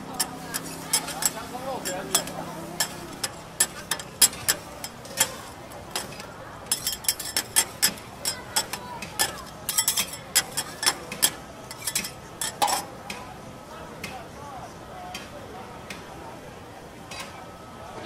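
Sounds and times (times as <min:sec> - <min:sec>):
food sizzling: 0:00.0 - 0:08.7
metal spatulas scraping on griddle: 0:00.1 - 0:12.9.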